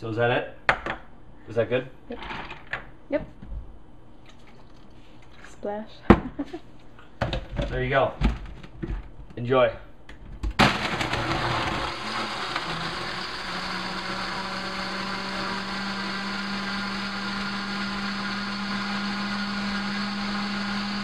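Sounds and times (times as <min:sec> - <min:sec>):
blender motor whirring: 0:10.6 - 0:21.0.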